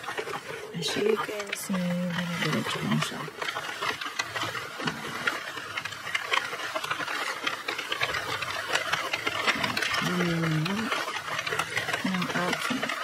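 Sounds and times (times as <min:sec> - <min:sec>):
knitting machine needles clicking: 0:00.0 - 0:13.0.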